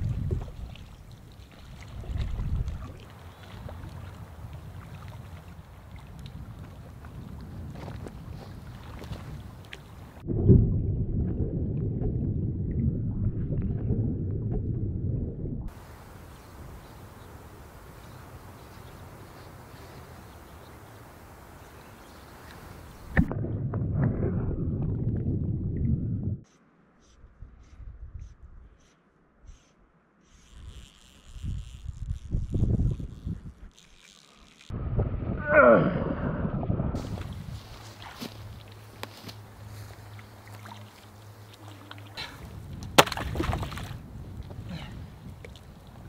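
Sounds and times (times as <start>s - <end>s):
lake water lapping: 0.0s - 10.2s, 15.7s - 23.3s, 37.0s - 46.0s
underwater rumble and sloshing: 0.0s - 15.9s, 22.8s - 26.4s, 34.7s - 46.0s
wind buffeting microphone: 0.0s - 26.4s, 30.6s - 33.7s, 34.7s - 40.5s, 42.2s - 46.0s
open-air ambience hiss: 15.7s - 23.2s, 37.0s - 46.0s.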